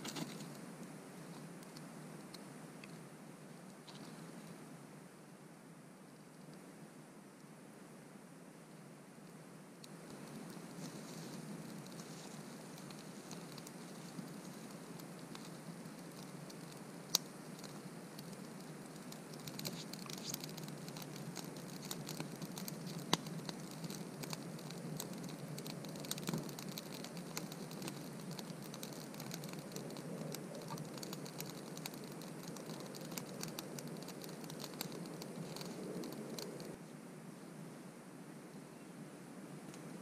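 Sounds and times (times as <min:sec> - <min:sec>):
campfire crackling and popping: 0:09.8 - 0:36.8.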